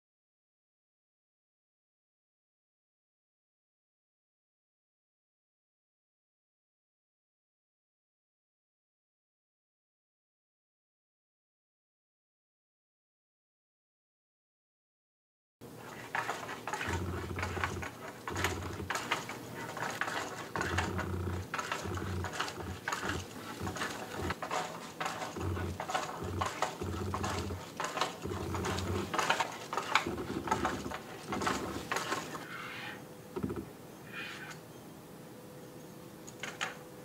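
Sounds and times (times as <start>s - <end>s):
linkage clattering: 15.8s - 32.4s
plastic feet tapping on wood: 15.9s - 32.4s.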